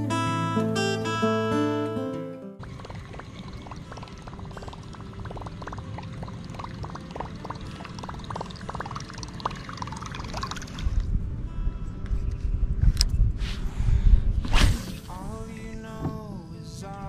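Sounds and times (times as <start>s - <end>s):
water trickling and splashing: 2.6s - 11.2s.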